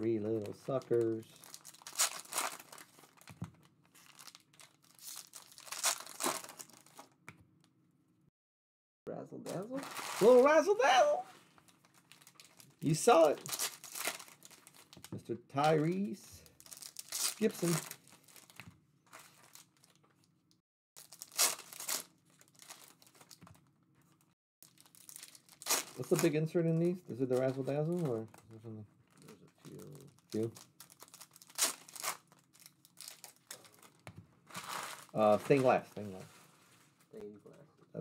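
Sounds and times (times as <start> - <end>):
foil wrapper tearing and crinkling: 0.3 - 7.1, 9.7 - 10.6, 11.6 - 15.1, 15.7 - 20.0, 21.0 - 23.5, 24.6 - 28.0, 29.7 - 35.9.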